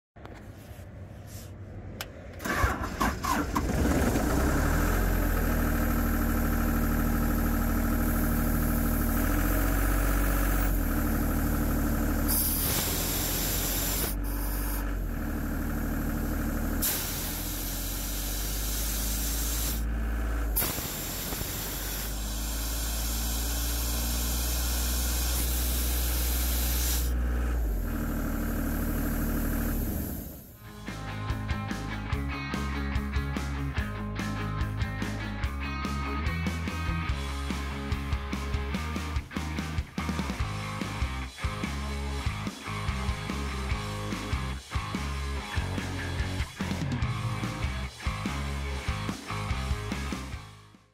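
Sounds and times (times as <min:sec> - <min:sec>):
air compressor diesel engine running: 0:02.4 - 0:31.0
compressed air hissing from valve: 0:12.3 - 0:15.0, 0:16.8 - 0:19.9, 0:20.5 - 0:27.9.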